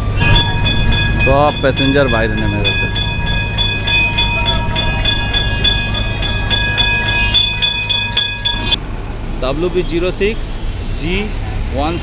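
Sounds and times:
tram warning bell ringing: 0:00.0 - 0:08.8.

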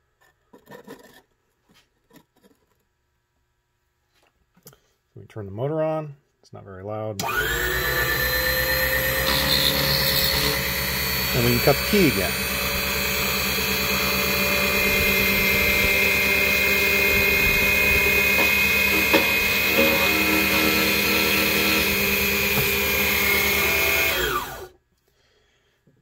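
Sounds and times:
cutter milling key blade: 0:07.2 - 0:24.7
key cutting machine motor whining: 0:07.2 - 0:24.7
motor winding down: 0:07.2 - 0:24.8.

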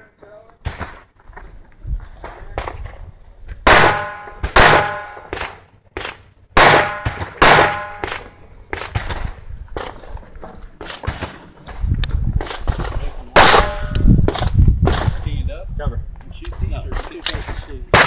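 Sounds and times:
handgun shots: 0:03.7 - 0:09.3, 0:12.4 - 0:15.1.

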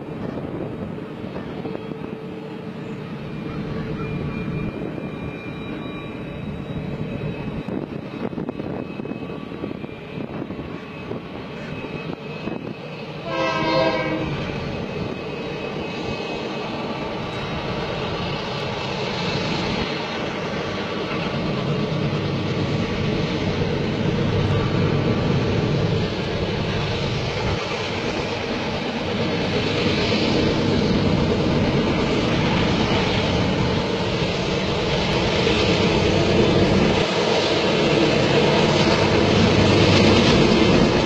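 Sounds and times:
diesel locomotives rumbling: 0:00.0 - 0:41.0
train horn blast: 0:13.2 - 0:14.5.

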